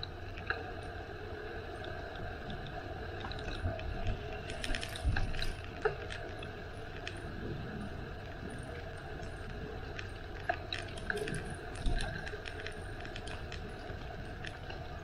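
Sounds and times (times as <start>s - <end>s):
bicycle tyres and wind rumble: 0.0s - 15.0s
bicycle clicks and rattles: 9.9s - 14.8s.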